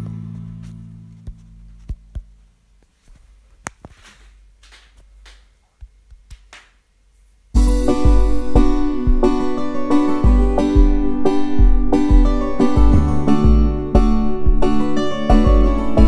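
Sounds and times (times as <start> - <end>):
music: 0.0 - 2.0, 7.6 - 16.0.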